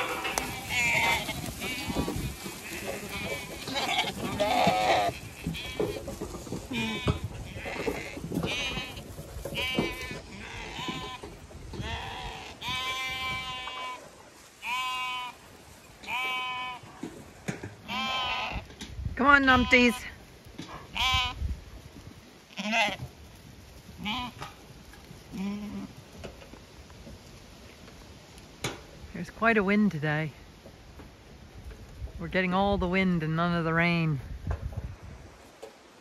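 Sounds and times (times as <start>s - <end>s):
wind buffeting microphone: 0.0s - 13.8s, 18.3s - 19.9s, 20.8s - 22.3s, 31.4s - 35.4s
lambs bleating: 0.0s - 15.4s, 16.0s - 17.0s, 17.8s - 18.7s, 19.3s - 20.1s, 20.9s - 21.4s, 22.5s - 23.1s, 24.0s - 24.5s, 25.3s - 26.0s.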